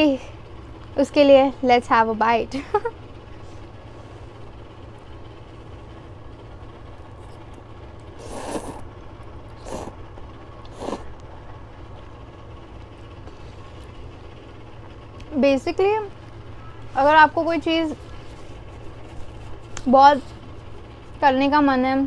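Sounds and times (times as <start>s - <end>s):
person slurping noodles: 8.1s - 8.9s, 9.6s - 10.0s, 10.6s - 11.1s.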